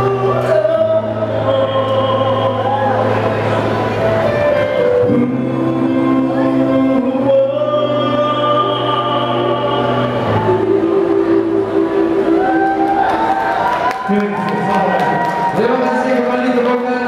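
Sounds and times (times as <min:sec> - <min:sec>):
man singing into a microphone: 0:00.0 - 0:03.6, 0:04.8 - 0:12.4
karaoke backing track: 0:00.0 - 0:17.0.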